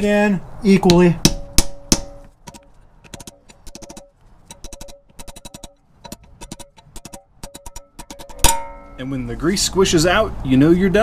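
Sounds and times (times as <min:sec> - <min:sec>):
hammer tapping on steel plate: 0:00.9 - 0:09.0
short metallic ring: 0:03.2 - 0:09.1.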